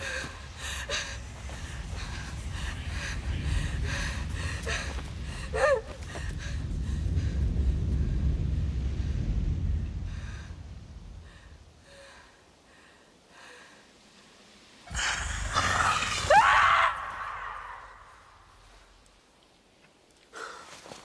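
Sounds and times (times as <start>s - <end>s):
low rumble: 0.0s - 12.8s
soft gasping breaths: 10.1s - 14.3s.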